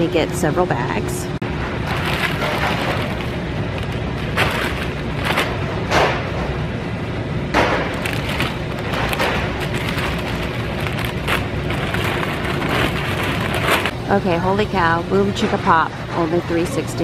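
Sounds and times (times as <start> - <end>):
steady low rumble: 0.0 - 16.6
bags of chips crinkling: 1.8 - 5.6, 7.9 - 14.0.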